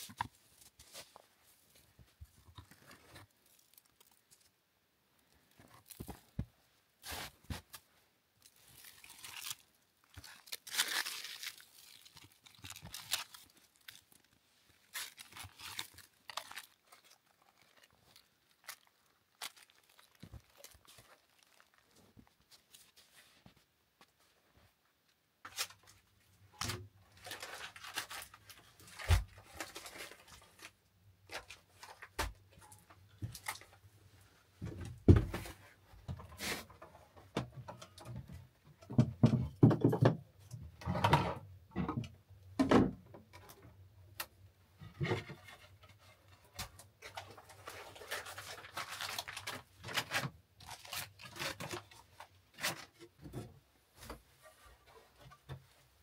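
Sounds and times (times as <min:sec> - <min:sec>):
paper packets rustling: 0:00.0 - 0:04.5, 0:08.4 - 0:23.4, 0:27.1 - 0:32.2, 0:46.6 - 0:53.0
knocks and thumps: 0:34.6 - 0:35.5, 0:38.8 - 0:40.2.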